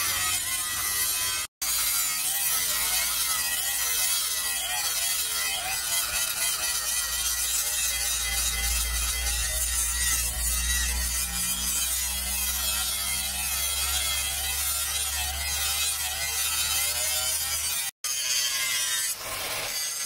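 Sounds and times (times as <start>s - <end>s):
angle grinder grinding steel: 0.0s - 20.0s.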